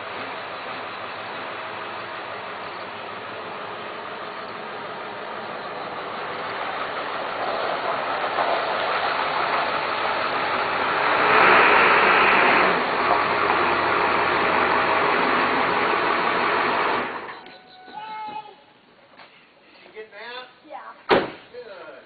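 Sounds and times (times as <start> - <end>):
pickup truck driving past: 0.0 - 17.4.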